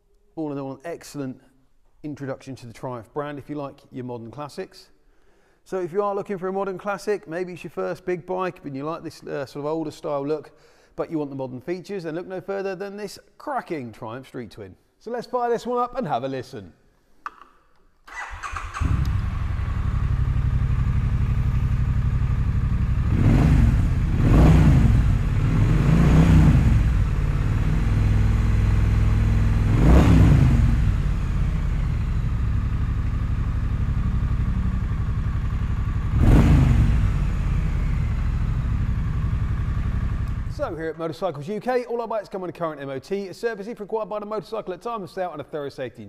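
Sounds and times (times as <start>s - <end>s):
motorcycle engine cranking: 18.1s - 19.3s
motorcycle engine idling: 18.1s - 24.2s, 30.6s - 40.7s.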